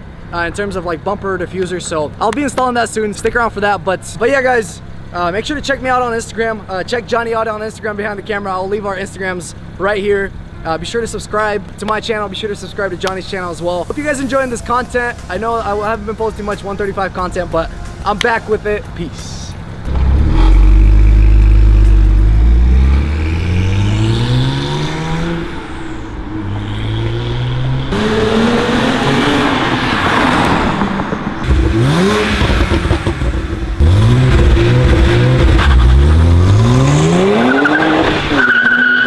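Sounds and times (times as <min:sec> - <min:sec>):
car engine revving: 0:19.6 - 0:39.0.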